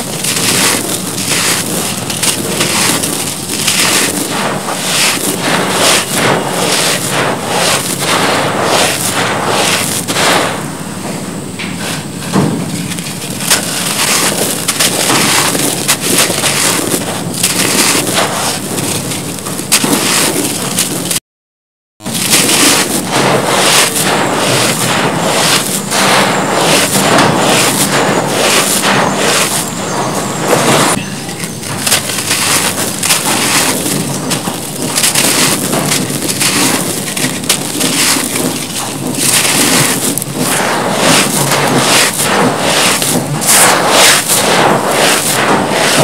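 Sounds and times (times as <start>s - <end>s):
hands crushing cement blocks: 0.0s - 10.8s, 11.6s - 21.2s, 22.0s - 46.0s.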